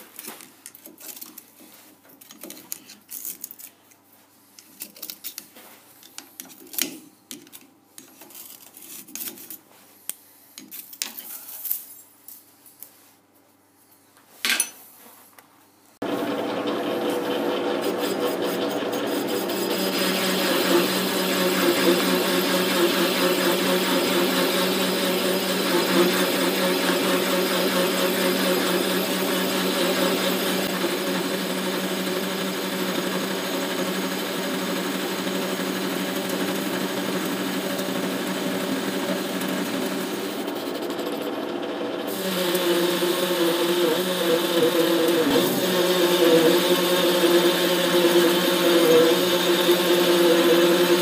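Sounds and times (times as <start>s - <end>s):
metal lathe humming: 16.0s - 51.0s.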